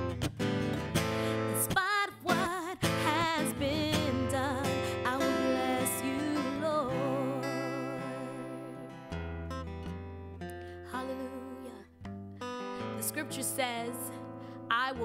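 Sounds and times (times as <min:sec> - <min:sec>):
acoustic guitar strumming: 0:00.0 - 0:15.0
woman singing gospel song: 0:01.6 - 0:08.9, 0:10.9 - 0:11.8, 0:14.7 - 0:15.0.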